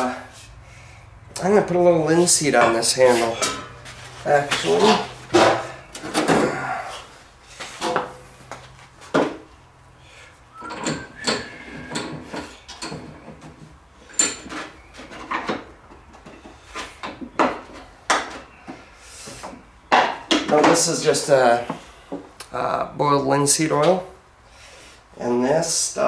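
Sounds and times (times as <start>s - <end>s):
tools and cans clattering on workbench: 2.5s - 6.6s, 7.7s - 9.4s, 10.6s - 21.0s.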